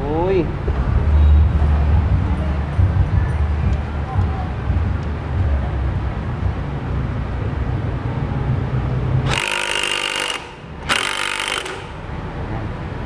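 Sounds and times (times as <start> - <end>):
low steady rumble: 0.0 - 13.0
impact wrench hammering: 9.2 - 12.1.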